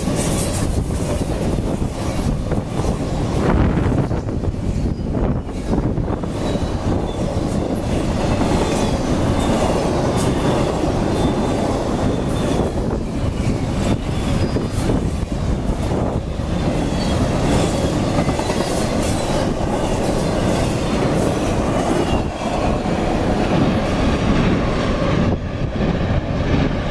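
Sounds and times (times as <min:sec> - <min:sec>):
freight train rumbling past: 0:00.0 - 0:26.9
high wheel squeals: 0:04.8 - 0:15.0, 0:16.6 - 0:22.9.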